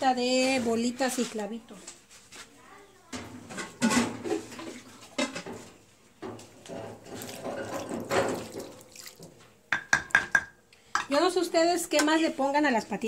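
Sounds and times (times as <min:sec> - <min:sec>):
water sloshing in stone bowl: 0:06.6 - 0:09.4.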